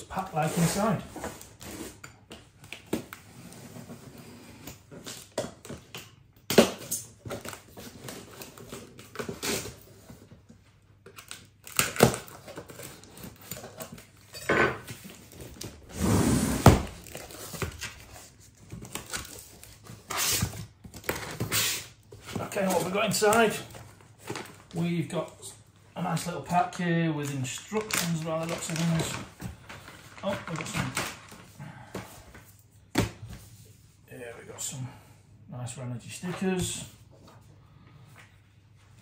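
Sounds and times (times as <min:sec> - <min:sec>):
cardboard tearing and crinkling: 0:11.1 - 0:14.2, 0:27.3 - 0:31.5.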